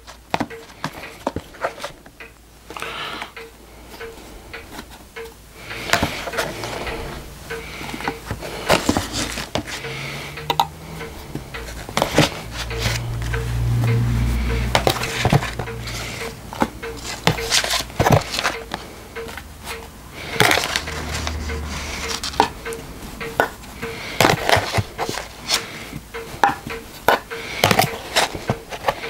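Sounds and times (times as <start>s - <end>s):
low hum: 9.8s - 17.9s.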